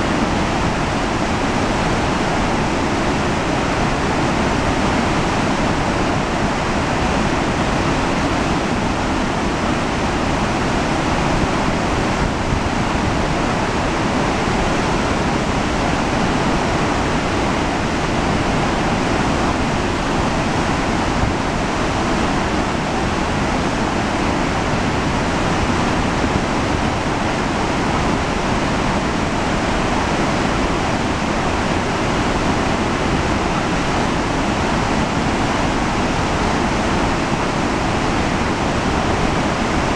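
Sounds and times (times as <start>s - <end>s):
whitewater rushing: 0.0s - 39.9s.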